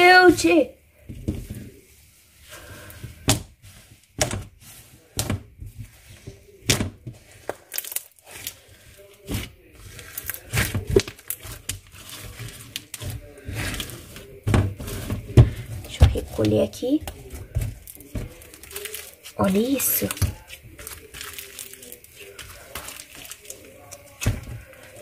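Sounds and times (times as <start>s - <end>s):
slime popping and crackling: 6.2s - 25.0s.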